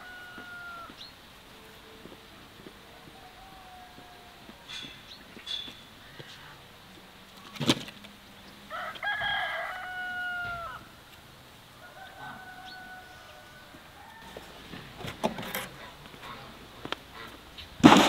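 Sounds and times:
rooster crowing: 0.0 - 1.1, 2.8 - 4.7, 8.7 - 11.0, 11.7 - 14.9.

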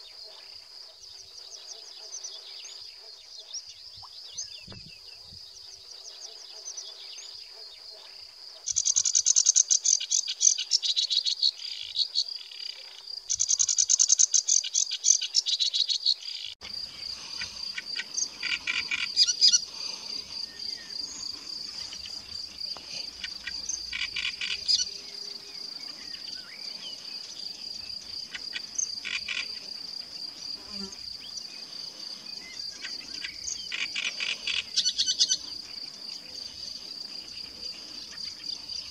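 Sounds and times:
warbler chattering song: 8.7 - 12.6, 13.3 - 29.6, 32.3 - 36.0.

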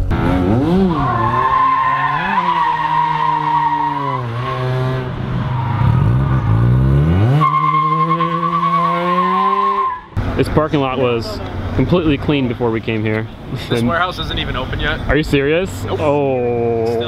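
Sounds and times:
car engine revving: 0.0 - 12.6
tyres squealing: 0.9 - 4.9.

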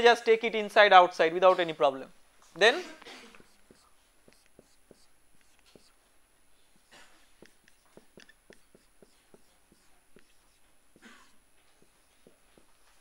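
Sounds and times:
marker writing on a whiteboard: 2.6 - 6.0, 6.7 - 13.0.

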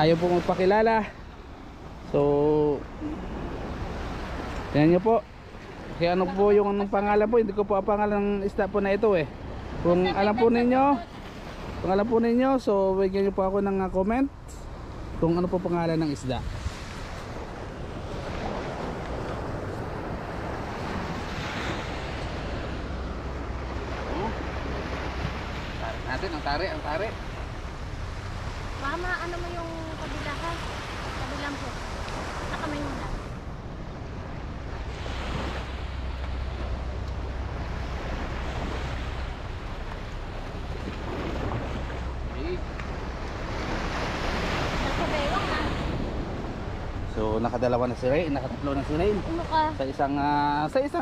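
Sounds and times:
small waves washing on beach: 0.0 - 51.0
wind buffeting microphone: 27.2 - 51.0.

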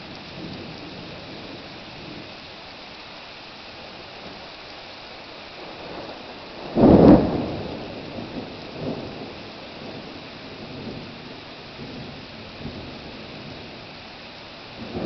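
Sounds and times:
heavy rain on pavement: 0.0 - 15.0
thunderclap: 6.6 - 10.1.

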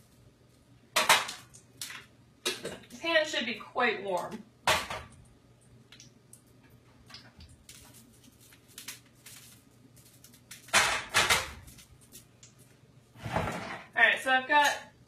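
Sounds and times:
low steady hum: 0.0 - 15.0
pan clattering on burner: 1.0 - 1.4, 10.7 - 11.6.

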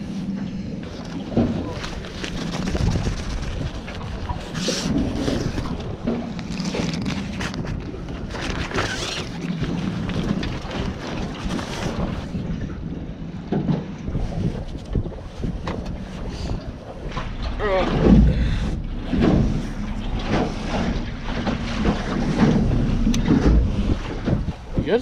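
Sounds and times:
wind buffeting microphone: 0.0 - 25.0.

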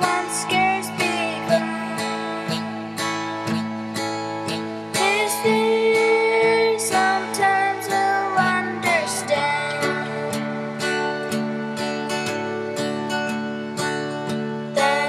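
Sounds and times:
girl singing a hymn: 0.0 - 2.7, 5.0 - 10.7, 14.8 - 15.0
acoustic guitar strumming: 0.0 - 15.0.

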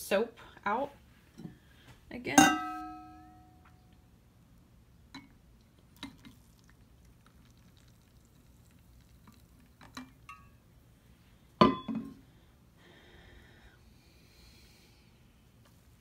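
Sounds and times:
water pouring into a tub: 5.9 - 9.8
bottle clinking against tub: 11.6 - 12.2.

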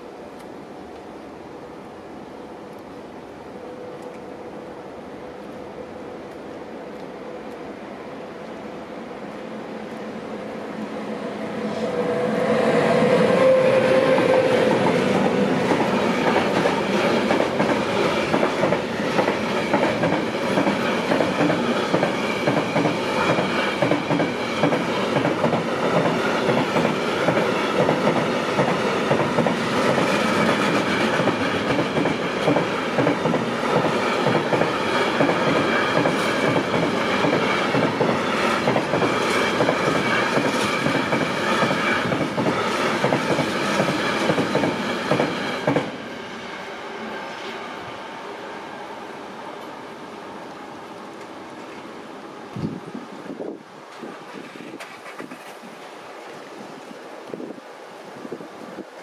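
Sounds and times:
freight train passing: 0.0 - 59.0.

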